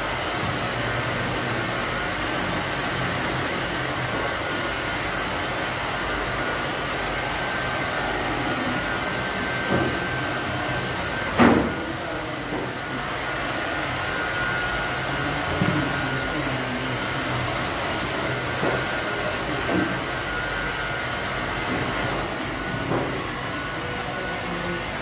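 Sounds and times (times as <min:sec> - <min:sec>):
electric air blower whirring: 0:00.0 - 0:25.0.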